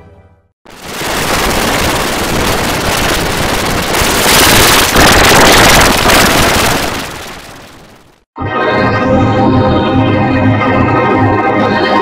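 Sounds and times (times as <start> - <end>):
harsh distorted noise: 0.7 - 8.3.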